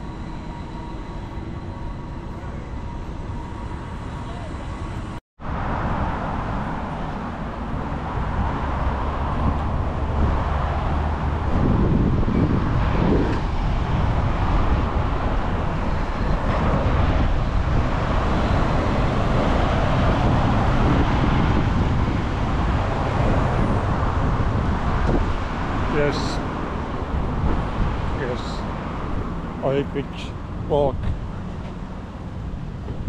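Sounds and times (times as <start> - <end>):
road traffic rumble: 0.0 - 33.0.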